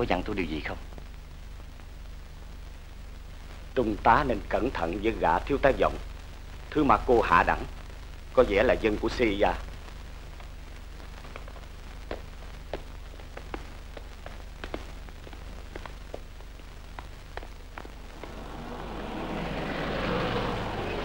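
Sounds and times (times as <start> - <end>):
steady low hum: 0.0 - 21.0
rushing noise: 17.8 - 21.0.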